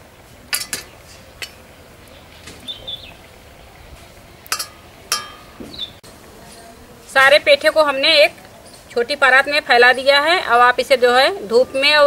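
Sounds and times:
bird chirping: 0.7 - 4.2, 5.1 - 6.7, 8.3 - 10.2
steel tongs clinking on a plate: 4.5 - 5.6.

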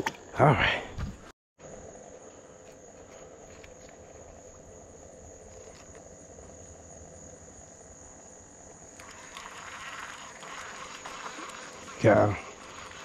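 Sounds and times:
high-pitched insect drone: 2.6 - 13.0.

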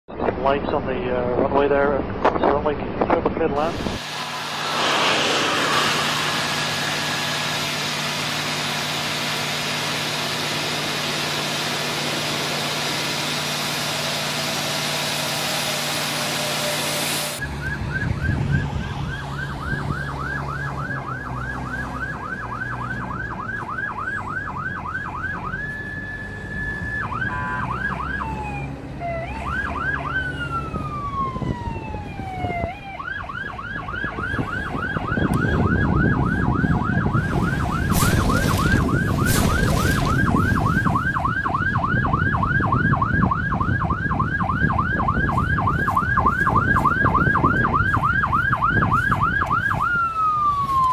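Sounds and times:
loud steady roar: 3.5 - 32.8, 33.4 - 50.9
emergency siren yelping: 17.3 - 50.9.

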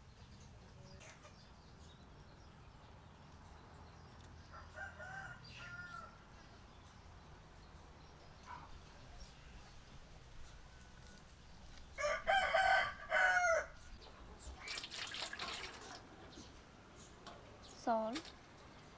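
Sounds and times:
distant rooster crowing: 4.4 - 6.3, 12.0 - 13.8.

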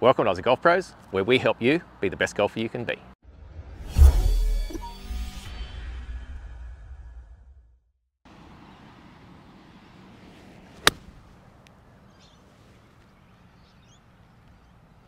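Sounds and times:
faint outdoor background noise: 0.0 - 3.2, 8.3 - 15.0
golf club striking ball: 10.8 - 11.3.

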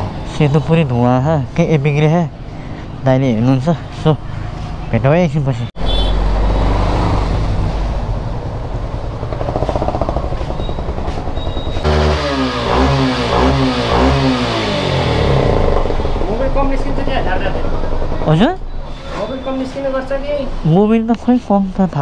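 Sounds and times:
road noise: 0.0 - 22.0
engine revving: 5.8 - 18.6
motorcycle engine running: 8.0 - 18.5.

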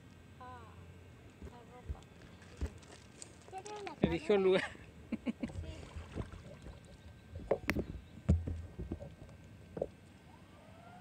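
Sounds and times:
faint rising whine: 6.0 - 11.0.

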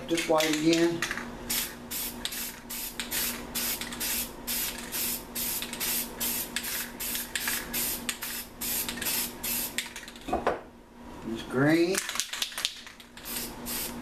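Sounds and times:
spray can bursts: 1.5 - 9.9, 13.2 - 14.0.

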